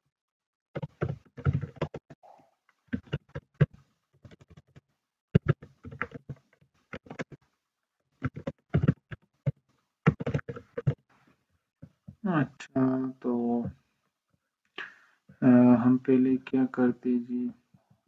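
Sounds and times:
computer keyboard typing: 0.8 - 2.1, 2.9 - 4.8, 5.4 - 7.4, 8.2 - 11.0.

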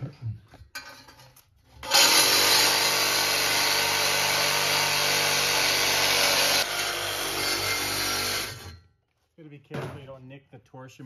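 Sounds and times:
reciprocating saw cutting pipe: 1.8 - 8.8.

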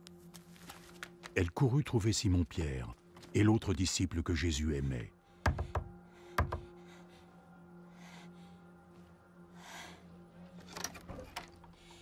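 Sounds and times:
woman breathing hard: 5.3 - 10.4
knocking on wooden door: 5.5 - 6.6.

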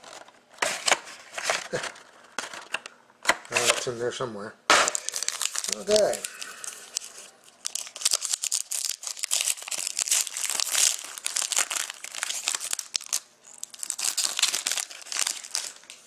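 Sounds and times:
foil wrapper crinkling: 4.9 - 16.0.

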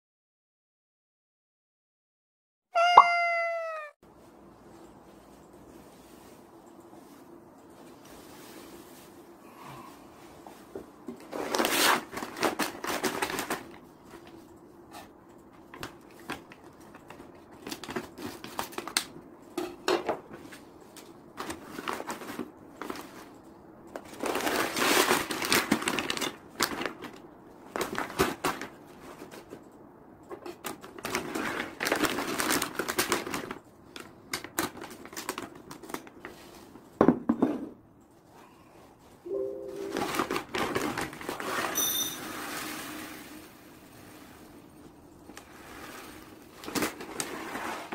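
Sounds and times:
plastic bags crinkling: 24.1 - 28.8, 30.7 - 36.4, 39.9 - 41.8, 45.2 - 47.9.

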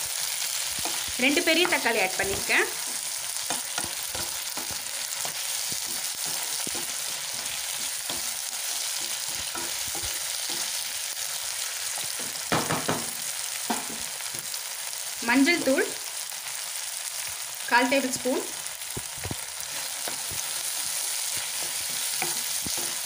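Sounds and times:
vegetables sizzling in hot oil: 0.0 - 23.0
wooden spatula scraping pan: 0.8 - 10.8.

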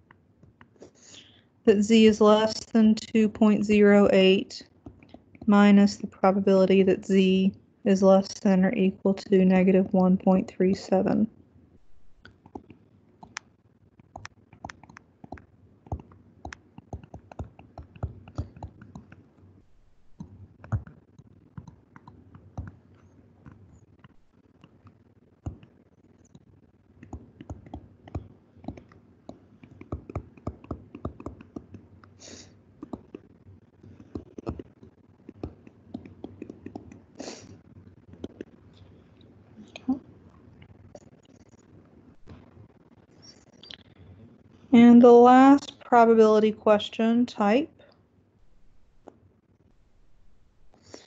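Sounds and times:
stylus tapping on tablet screen: 14.2 - 19.2, 27.0 - 31.8, 32.8 - 33.2, 33.8 - 37.0.

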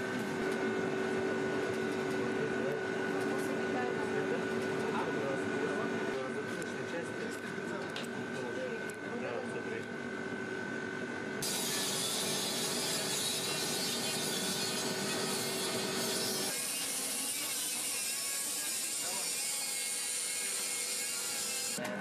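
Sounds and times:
electric power tool whirring: 11.4 - 21.9.

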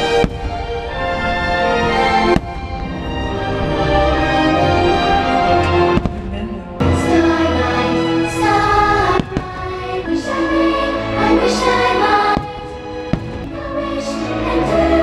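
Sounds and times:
firework bangs: 0.0 - 4.4, 5.7 - 10.0, 12.0 - 14.0
choir singing sustained chords: 0.0 - 15.0
orchestral music: 0.0 - 15.0.

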